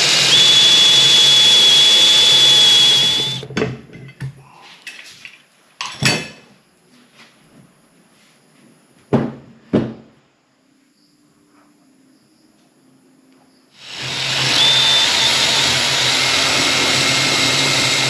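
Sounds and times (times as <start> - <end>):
electric wood router whirring: 0.0 - 3.5, 13.8 - 18.0.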